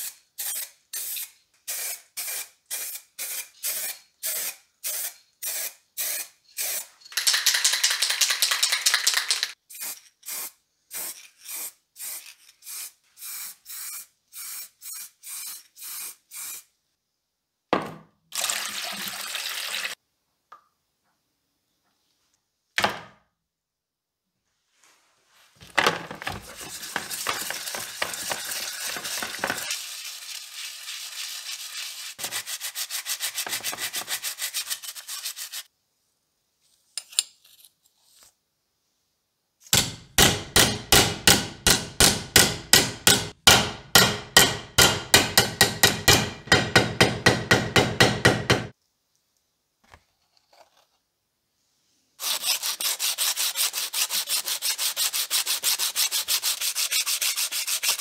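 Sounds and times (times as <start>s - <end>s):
metal rubbed on sandpaper: 10.9s - 16.7s, 26.4s - 35.7s, 52.2s - 58.0s
metal parts scrubbed in water: 26.3s - 35.6s
mallet knocking thin metal: 39.8s - 48.7s.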